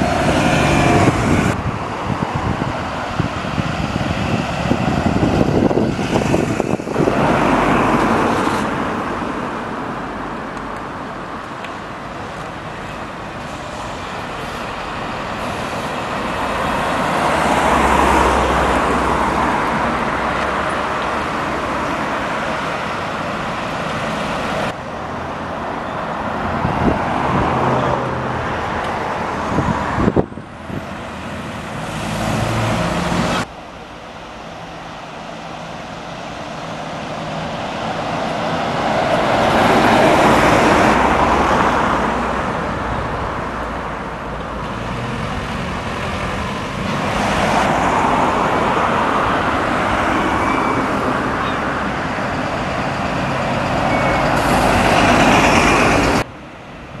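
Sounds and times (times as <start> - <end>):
buses and cars driving past: 0.0 - 57.0.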